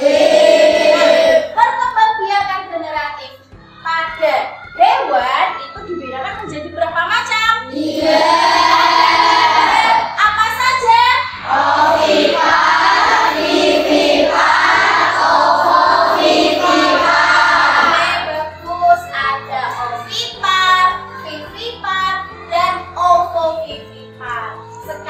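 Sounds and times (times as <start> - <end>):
children singing in unison: 0.0 - 1.5, 7.7 - 10.1, 11.4 - 18.3.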